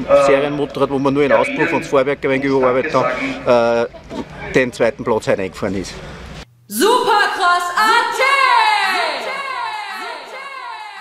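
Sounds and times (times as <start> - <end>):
person singing: 7.7 - 11.0.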